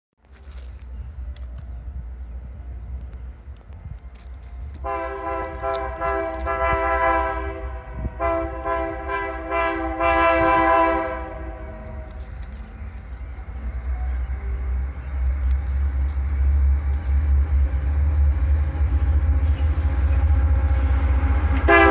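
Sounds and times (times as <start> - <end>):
low rumble: 0.2 - 21.9
locomotive air horn blasts: 4.8 - 12.1, 21.6 - 21.9.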